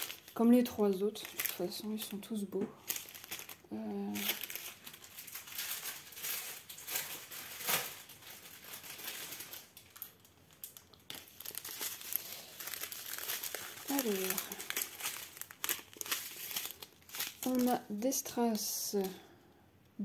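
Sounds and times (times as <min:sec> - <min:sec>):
plastic packaging crinkling: 0:00.0 - 0:19.2.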